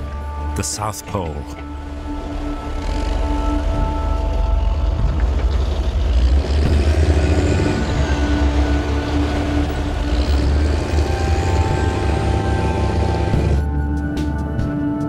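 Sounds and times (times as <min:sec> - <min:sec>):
bulldozer diesel engine rumbling: 0:00.0 - 0:13.8.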